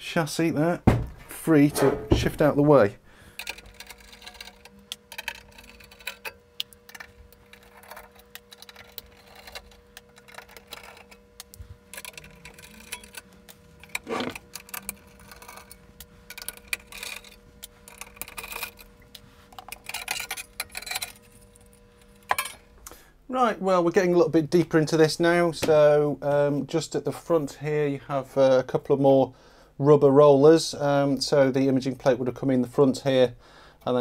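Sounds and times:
knock: 0:00.9 - 0:01.2.

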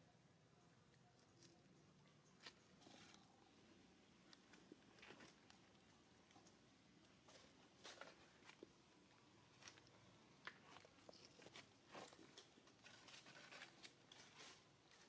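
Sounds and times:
faint clicks and rustles: 0:04.1 - 0:15.0.

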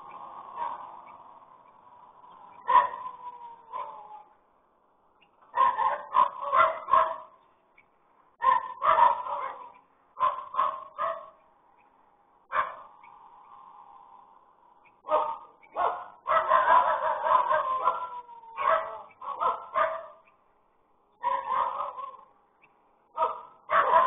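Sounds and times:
dog barking: 0:00.5 - 0:00.9, 0:02.6 - 0:04.3, 0:05.5 - 0:07.4, 0:08.4 - 0:11.4, 0:12.5 - 0:12.9, 0:15.0 - 0:20.3, 0:21.2 - 0:22.3, 0:23.1 - 0:24.0.

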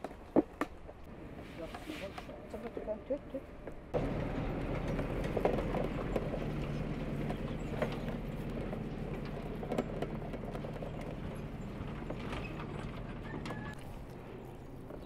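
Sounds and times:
low mechanical hum: 0:03.5 - 0:15.0.

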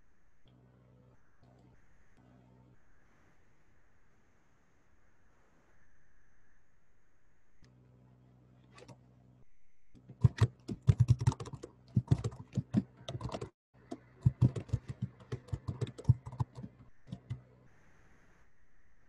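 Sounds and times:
typing on computer keyboard: 0:10.1 - 0:17.4.

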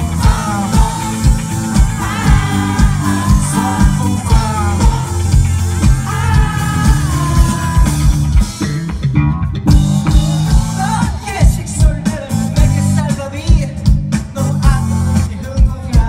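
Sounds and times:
person singing: 0:00.0 - 0:08.4
deep bass notes: 0:00.0 - 0:16.0
steady drum beat: 0:00.0 - 0:16.0.

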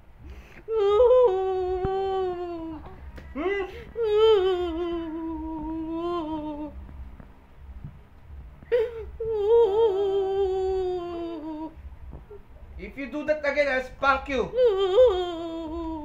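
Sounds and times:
toddler whimpering: 0:00.7 - 0:06.8, 0:08.7 - 0:12.3.

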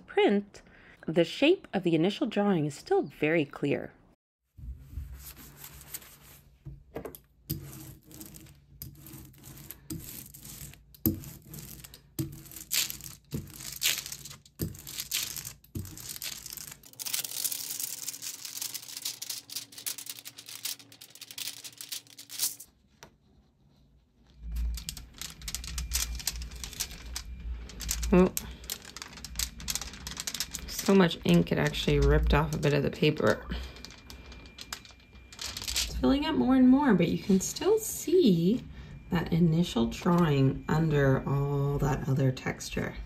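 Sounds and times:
damp sponge wiping: 0:04.7 - 0:06.5
rubber roller rolling: 0:04.7 - 0:35.9
paper handling: 0:09.2 - 0:23.1, 0:24.4 - 0:35.9
low rumble: 0:24.3 - 0:42.1.

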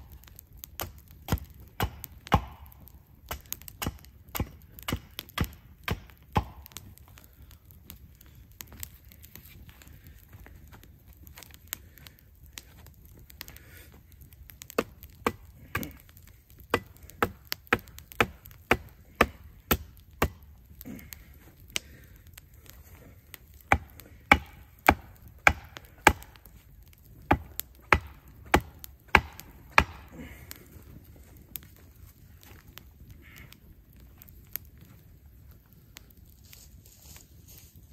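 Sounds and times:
hatchet striking wooden stake: 0:00.8 - 0:06.8, 0:14.8 - 0:15.9, 0:16.7 - 0:20.4, 0:23.7 - 0:26.4, 0:27.3 - 0:30.1.

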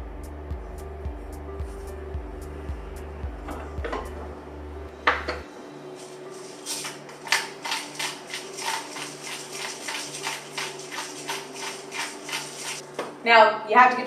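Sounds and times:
pepper mill grinding: 0:06.0 - 0:12.8.

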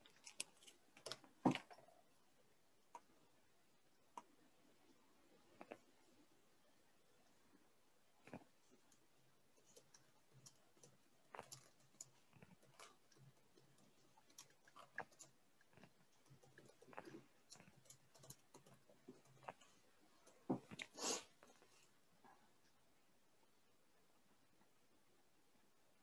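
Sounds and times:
computer keyboard typing: 0:09.6 - 0:15.4, 0:16.2 - 0:19.5.

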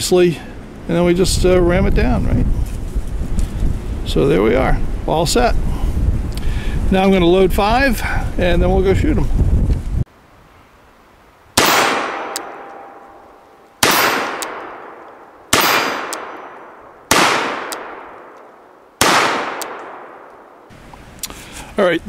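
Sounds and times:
revolver shots echoing: 0:11.6 - 0:13.2, 0:13.8 - 0:20.7.

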